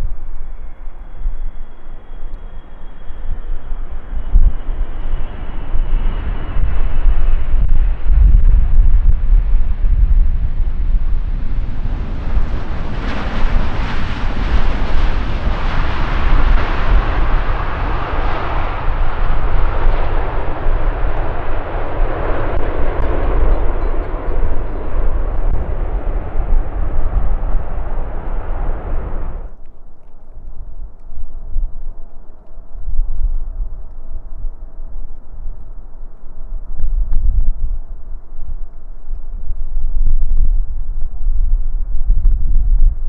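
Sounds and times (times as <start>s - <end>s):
airliner flying past: 0.0s - 29.6s
wind on the microphone: 0.0s - 43.0s.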